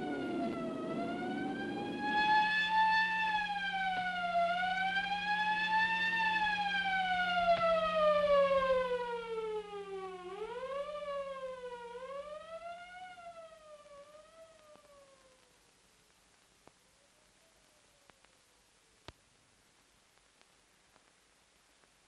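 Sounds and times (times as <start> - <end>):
ambulance siren wailing: 0.0 - 15.4.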